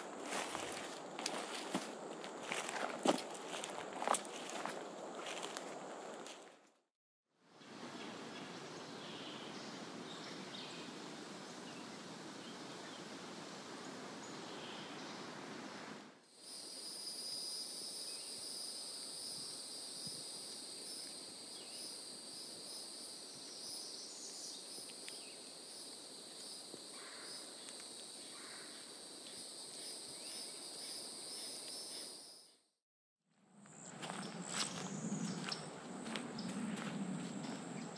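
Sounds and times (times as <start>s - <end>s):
insects trilling: 16.3s - 32.6s.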